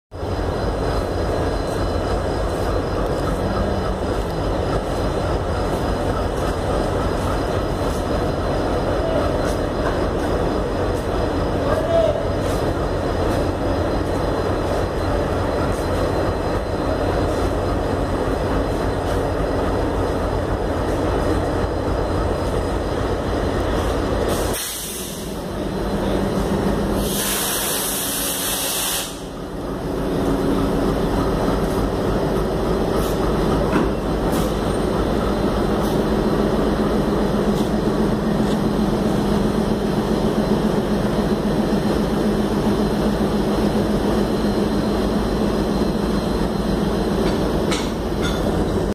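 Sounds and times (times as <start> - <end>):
locomotive engine rumble: 0.1 - 48.9
air hissing: 24.3 - 25.4, 26.9 - 29.4.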